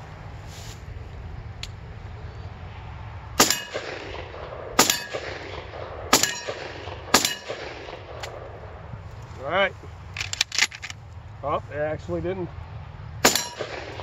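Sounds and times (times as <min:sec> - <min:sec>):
shotgun shots: 0:03.4 - 0:08.5, 0:13.2 - 0:14.0
metallic ring: 0:06.2 - 0:06.6, 0:07.2 - 0:07.5, 0:13.3 - 0:13.7.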